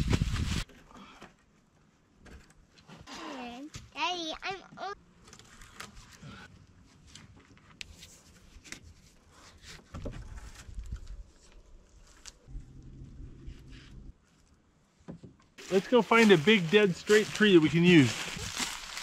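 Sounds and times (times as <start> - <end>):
low rumble on microphone: 12.4 - 14.2.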